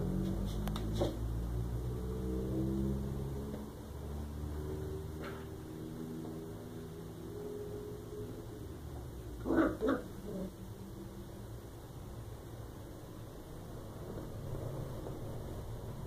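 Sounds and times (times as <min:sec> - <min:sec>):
puppy barking: 0:09.4 - 0:10.5.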